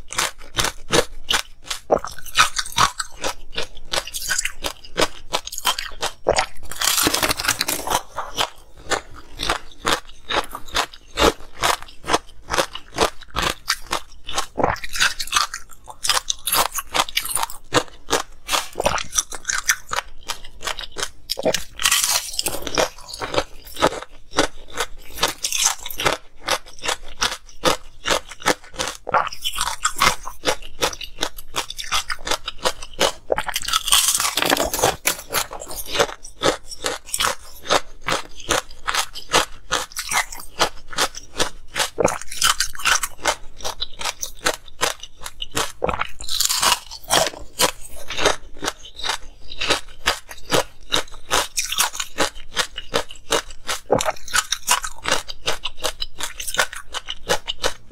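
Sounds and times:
chewing crunchy ice: 0:00.0 - 0:57.9.

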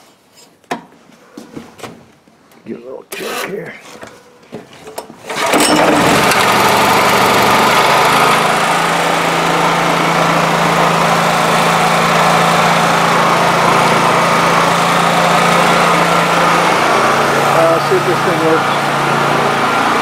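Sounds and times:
generator engine starting and running: 0:04.8 - 0:20.0.

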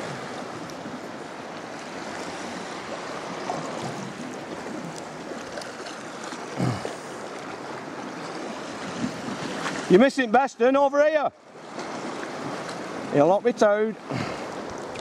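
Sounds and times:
water splashing around kayak: 0:00.0 - 0:15.0.

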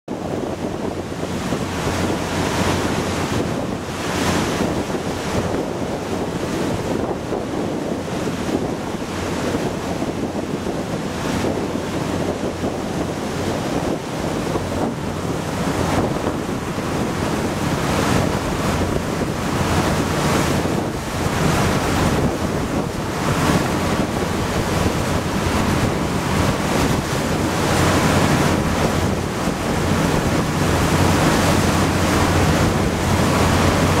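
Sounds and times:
low engine hum: 0:00.1 - 0:34.0
water splashing along hull: 0:00.1 - 0:34.0
wind buffeting microphone: 0:00.1 - 0:34.0.

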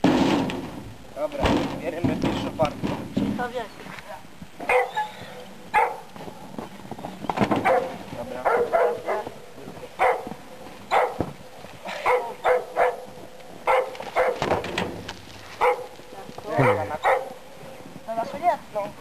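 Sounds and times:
dog barking: 0:04.6 - 0:06.1, 0:07.6 - 0:09.4, 0:10.0 - 0:11.3, 0:11.9 - 0:14.5, 0:15.6 - 0:17.4.

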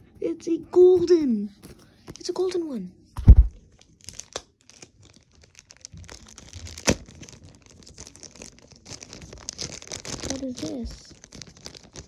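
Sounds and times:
packaging crinkling and tearing: 0:03.2 - 0:12.0.

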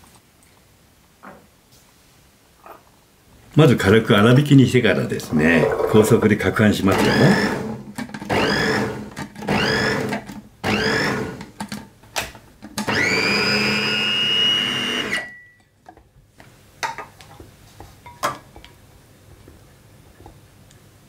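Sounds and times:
food processor whirring: 0:06.9 - 0:11.5, 0:12.9 - 0:15.3.

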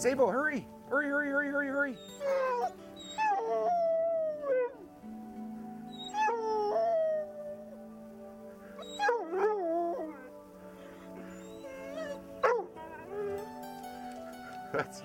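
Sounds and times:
dog whining howls: 0:02.0 - 0:04.8, 0:05.9 - 0:07.8, 0:08.8 - 0:10.3, 0:10.9 - 0:13.4.

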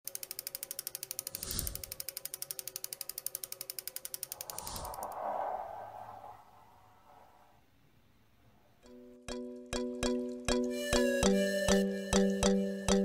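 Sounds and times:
clockwork gears clicking: 0:00.1 - 0:04.8
whooshes: 0:04.3 - 0:08.2
swell of noise: 0:04.3 - 0:08.3.

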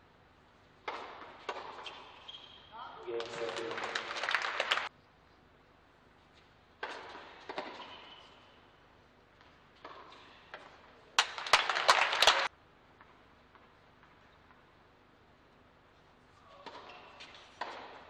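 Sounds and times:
tennis ball struck by rackets: 0:00.8 - 0:01.8, 0:06.8 - 0:08.0, 0:17.6 - 0:18.0
crowd applause: 0:03.2 - 0:04.9, 0:11.2 - 0:12.5.

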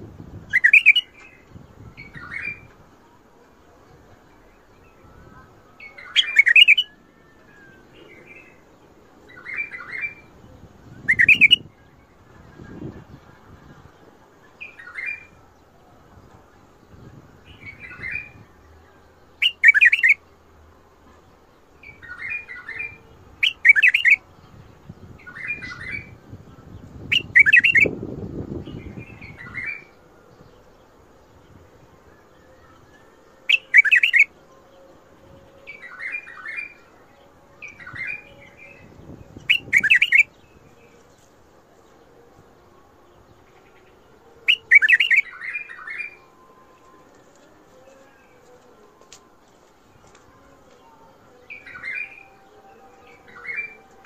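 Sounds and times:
bulbul warbling song: 0:00.4 - 0:02.7, 0:04.4 - 0:08.6, 0:09.3 - 0:13.0, 0:19.4 - 0:20.3, 0:21.8 - 0:30.0, 0:32.2 - 0:34.4, 0:35.2 - 0:41.0, 0:43.1 - 0:54.0.

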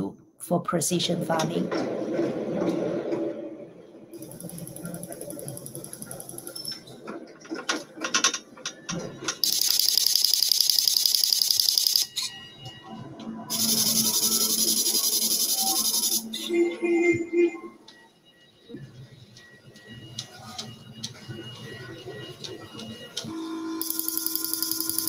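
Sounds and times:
robot clicks and ticks: 0:04.2 - 0:06.7, 0:09.4 - 0:12.1, 0:13.5 - 0:16.3, 0:23.8 - 0:25.0
high pulsing buzzing whir: 0:13.5 - 0:16.4.

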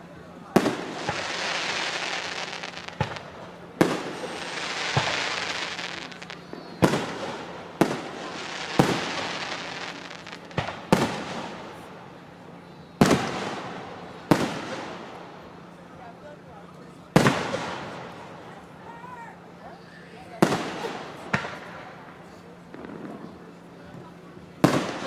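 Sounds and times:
steady hiss: 0:00.0 - 0:15.9
fireworks bangs: 0:00.5 - 0:12.0, 0:13.0 - 0:15.4, 0:17.1 - 0:18.4, 0:20.4 - 0:23.7, 0:24.6 - 0:25.0.

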